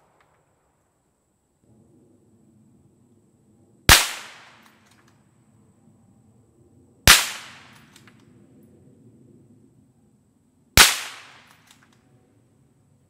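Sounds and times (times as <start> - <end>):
suppressed rifle shots: 3.9 - 5.0, 10.8 - 11.8.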